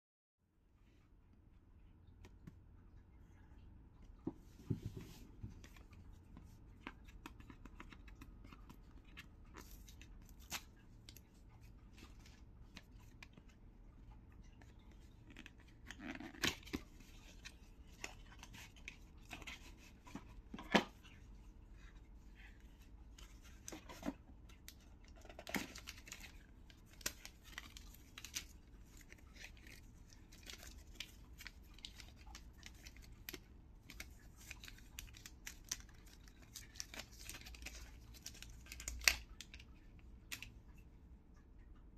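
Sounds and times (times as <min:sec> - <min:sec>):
cardboard and paper rustling: 0:15.5 - 0:39.2.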